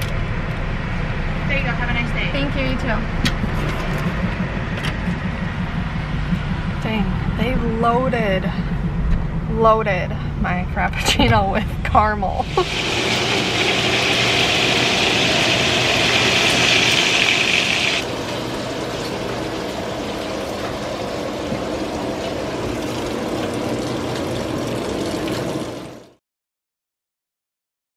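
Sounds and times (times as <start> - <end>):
dull steady noise: 0.0 - 26.1
bacon sizzling in a frying pan: 12.4 - 20.4.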